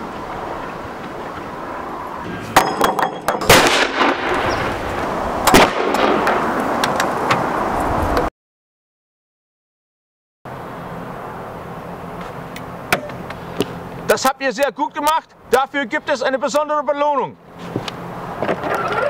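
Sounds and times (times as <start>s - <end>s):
howitzers firing: 3.4s - 6.6s.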